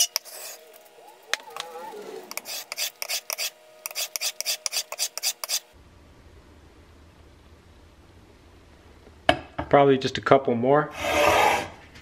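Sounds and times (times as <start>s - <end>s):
plane iron rasping on sandpaper: 0.0s - 0.6s, 2.3s - 5.6s.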